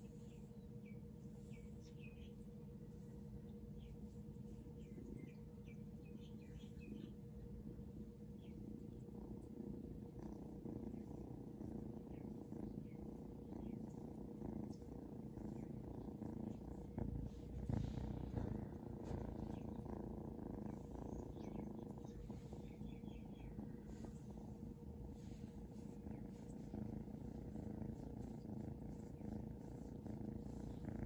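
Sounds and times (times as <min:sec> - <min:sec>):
kitten purring: 0:00.0 - 0:31.0.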